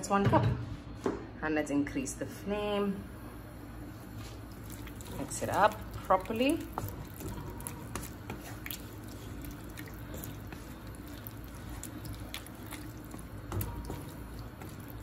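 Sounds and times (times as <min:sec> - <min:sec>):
wet squishing of stirred beans: 0:04.1 - 0:15.0.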